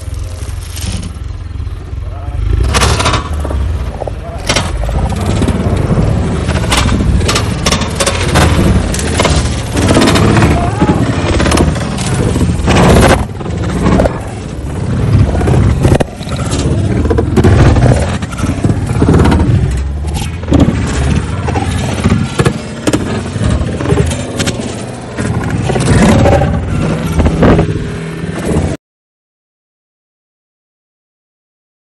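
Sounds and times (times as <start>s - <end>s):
car body rumbling and scraping: 0.0s - 28.8s
knocks and bangs: 2.6s - 27.9s.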